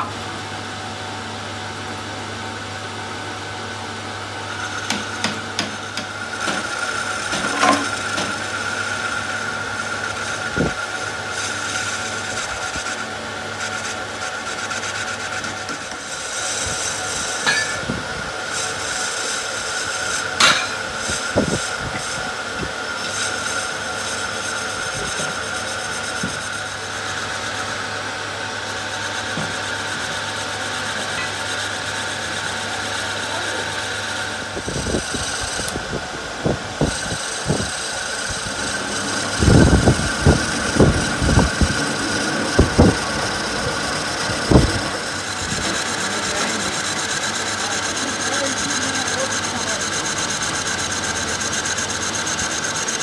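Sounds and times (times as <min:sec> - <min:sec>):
metal lathe humming and whining: 0:00.0 - 0:53.0
tool bit cutting with rasping hiss: 0:04.5 - 0:27.9, 0:28.6 - 0:35.8, 0:36.8 - 0:53.0
sharp clicks and knocks: 0:04.8 - 0:06.7.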